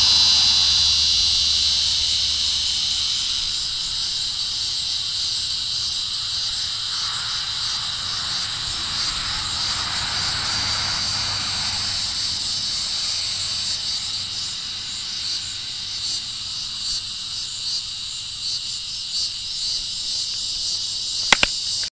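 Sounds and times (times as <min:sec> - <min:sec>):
cicada buzzing: 0:00.0 - 0:21.9
sharp clicks: 0:21.2 - 0:21.9.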